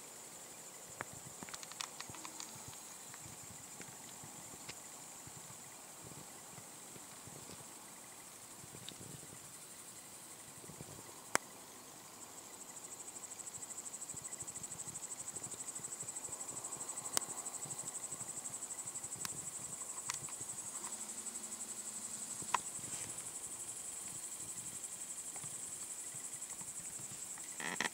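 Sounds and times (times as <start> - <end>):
insects chirring: 0.0 - 27.9
sharp clicks: 1.4 - 3.2.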